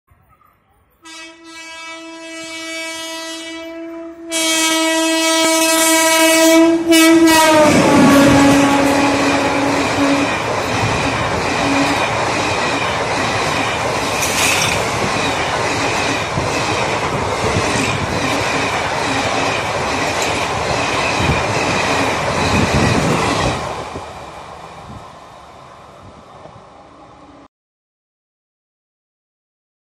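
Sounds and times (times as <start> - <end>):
train wheels rumbling on rail: 2.3 - 27.3
knocks of train wheels: 7.4 - 24.1.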